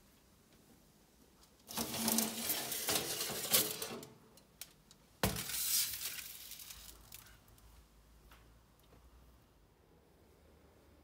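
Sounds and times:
aluminium foil crinkling: 1.7 - 4.8, 5.4 - 7.6.

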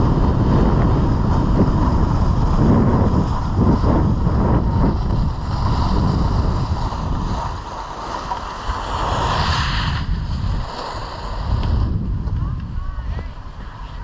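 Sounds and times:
snowboard hissing over snow: 0.0 - 12.2
wind buffeting microphone: 0.0 - 14.0.

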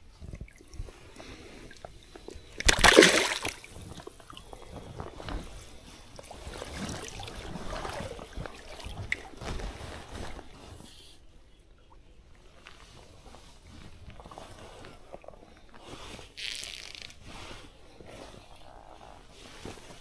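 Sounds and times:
river water sloshing and splashing: 2.6 - 4.0.

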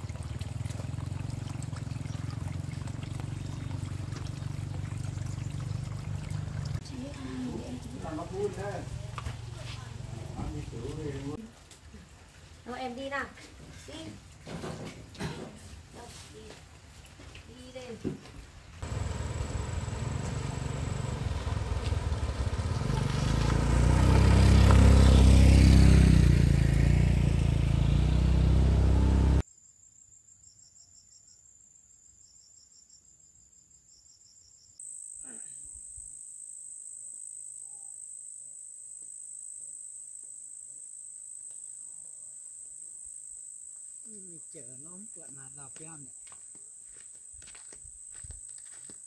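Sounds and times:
insects buzzing and chirping: 18.7 - 26.0, 29.4 - 49.0.

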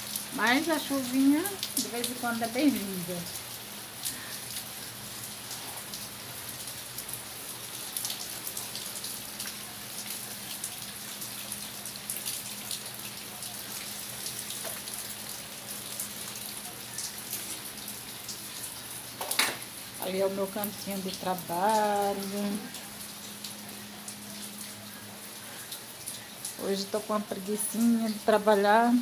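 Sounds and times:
light rain hissing: 0.0 - 29.0
raindrops ticking on surfaces: 0.0 - 29.0.

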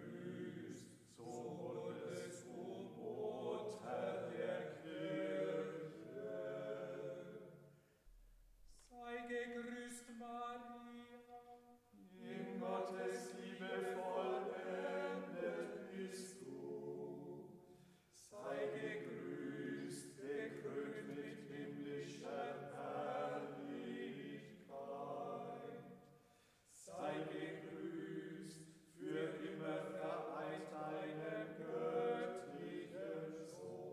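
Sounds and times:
voices singing a hymn unaccompanied: 0.0 - 7.8, 8.8 - 33.9.

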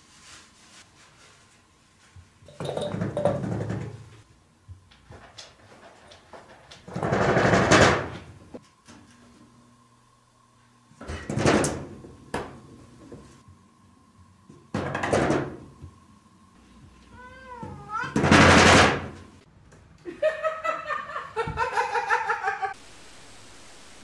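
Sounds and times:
cat meowing: 17.1 - 18.2.

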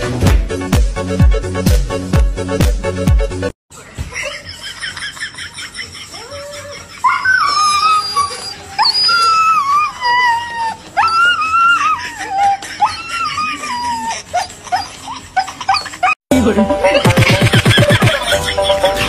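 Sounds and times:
dog howling whines: 6.3 - 15.1.

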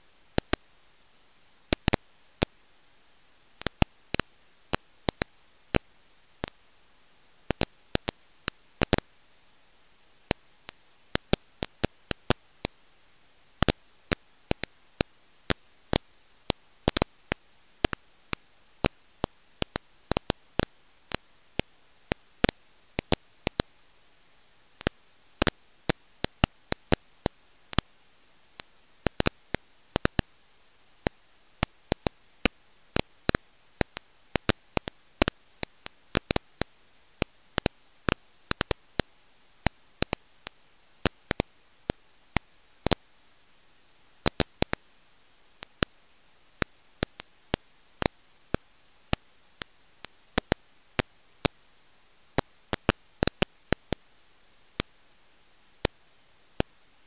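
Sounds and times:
faint steady hiss: 0.0 - 57.0
sharp irregular clicks: 0.4 - 0.6, 1.7 - 2.6, 3.6 - 6.6, 7.5 - 9.1, 10.3 - 12.8, 13.6 - 23.7, 28.6 - 30.3, 31.0 - 43.0, 44.2 - 44.8, 46.6 - 51.6, 52.4 - 54.0.

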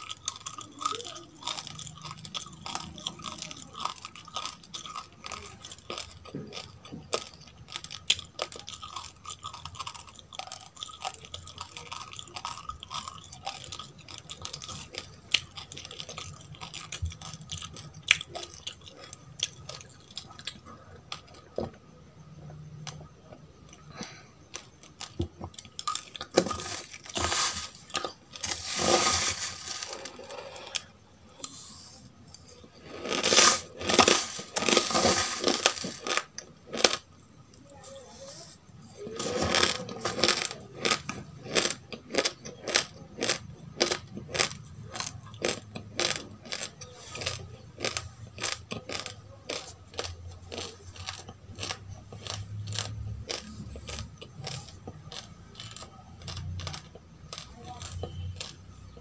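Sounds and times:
chewing crunchy rice: 0.0 - 59.0
grinding and rustling: 26.3 - 30.8.

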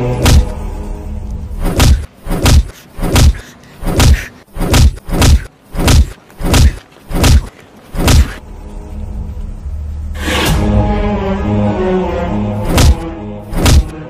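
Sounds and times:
punch sound effects: 0.2 - 0.6, 1.6 - 8.4, 12.6 - 14.0.

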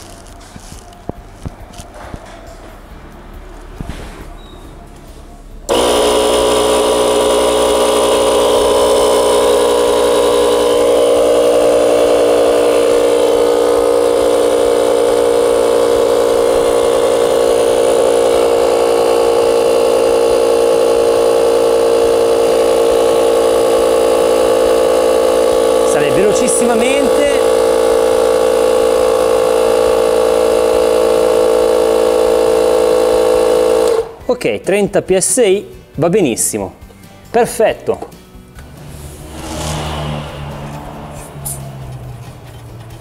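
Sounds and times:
portable air compressor running: 0.0 - 2.3, 5.7 - 34.2.

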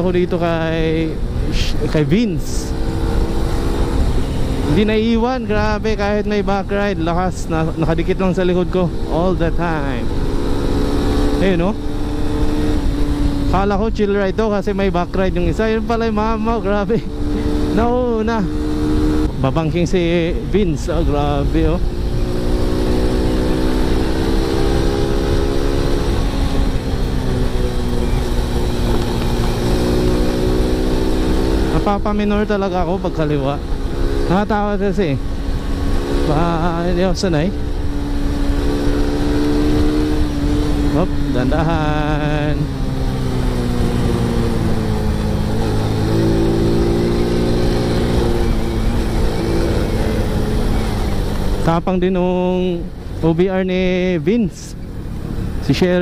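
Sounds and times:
motorcycle engine cruising: 0.0 - 56.0
wind rumble on helmet microphone: 0.0 - 56.0.

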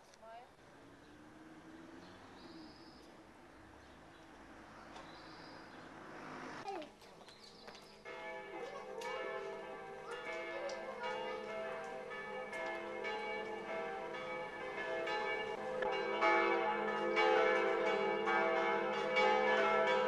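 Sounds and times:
church bells ringing: 8.0 - 20.0.

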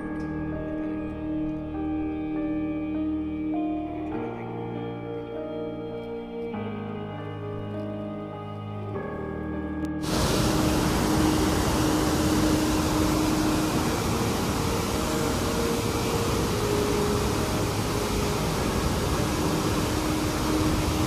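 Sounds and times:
faint steady hum: 10.0 - 21.0
floodwater rushing: 10.0 - 21.0.

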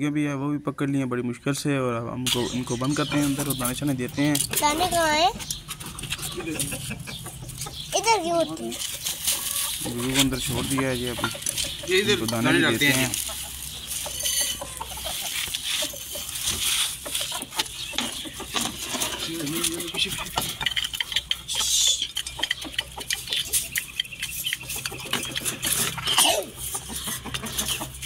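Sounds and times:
grain pattering into bowls: 8.6 - 22.4.

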